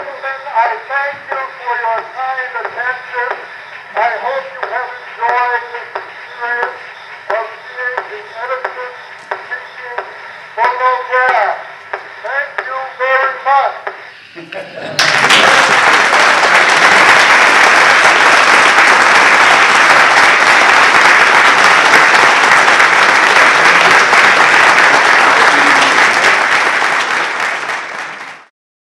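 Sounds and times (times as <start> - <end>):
audience applauding: 15.0 - 28.5.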